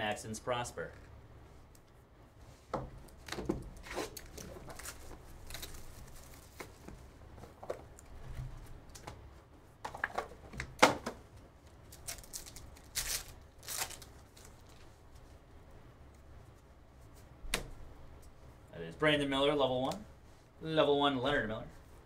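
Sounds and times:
foil pack crinkling and tearing: 3.8 - 6.6, 11.9 - 14.8.

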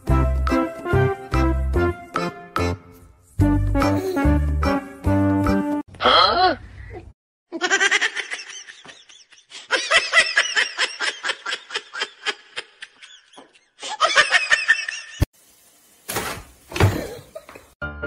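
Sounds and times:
person laughing hard: 7.6 - 15.2.

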